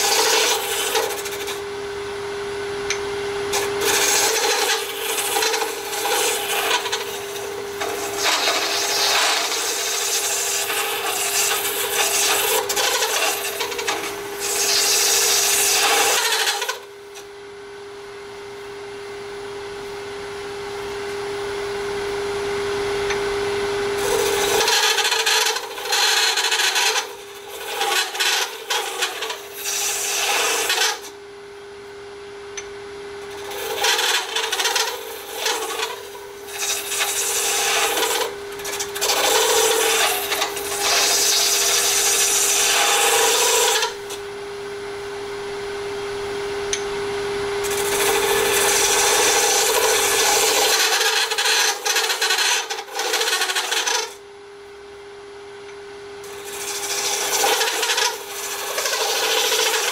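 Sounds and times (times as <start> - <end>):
lathe tool scraping: 0.0 - 1.6, 2.9 - 17.2, 24.0 - 31.1, 33.2 - 44.2, 47.6 - 54.2, 56.2 - 59.9
lathe humming: 0.0 - 2.3, 2.9 - 17.2, 20.7 - 31.1, 32.6 - 54.2, 56.2 - 59.9.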